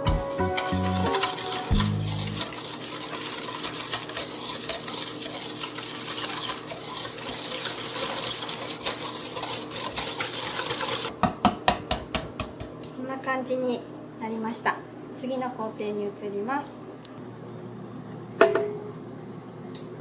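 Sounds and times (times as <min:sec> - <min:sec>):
whisk clattering in a metal bowl: 0:00.3 - 0:11.1.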